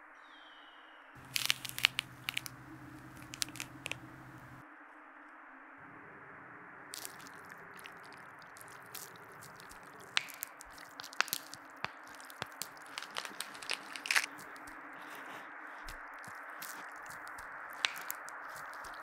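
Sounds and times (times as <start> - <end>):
crunching and snapping: 1.2 - 4.6, 7.0 - 19.0
steady hiss: 1.2 - 4.6.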